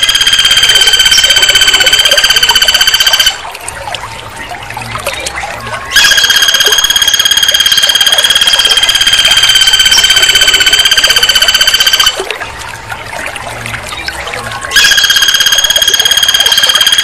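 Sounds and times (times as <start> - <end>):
rapid high-pitched trill: 0.0 - 3.4, 5.9 - 12.2, 14.7 - 17.0.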